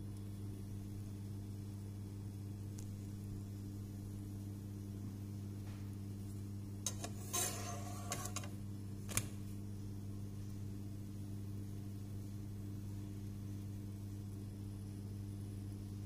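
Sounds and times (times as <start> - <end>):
utensil scraping frying pan: 6.9 - 8.5.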